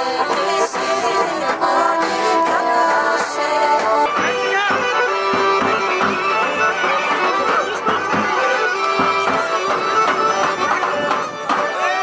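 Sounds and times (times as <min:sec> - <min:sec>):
reedy folk melody over drone: 0:00.0 - 0:12.0.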